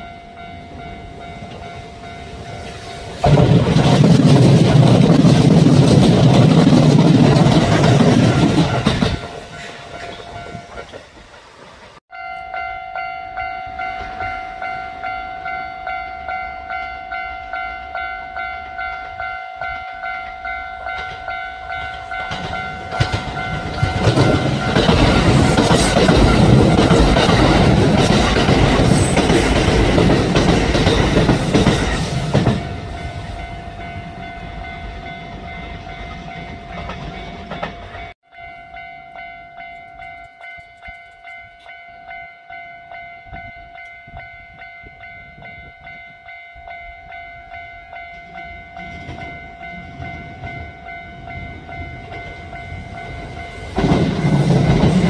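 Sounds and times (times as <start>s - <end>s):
level-crossing warning bell ringing: 0.0s - 3.4s, 4.8s - 11.0s, 12.1s - 55.0s
train wheels clacking over rail joints: 3.2s - 12.0s, 22.0s - 32.7s, 53.2s - 55.0s.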